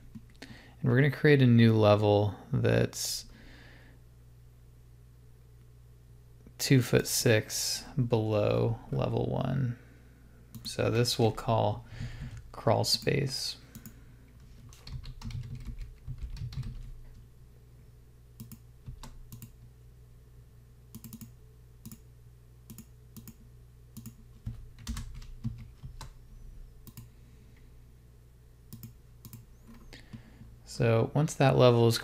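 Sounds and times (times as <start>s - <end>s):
computer keyboard typing: 13.7s - 17.1s, 20.9s - 22.0s, 24.0s - 26.2s.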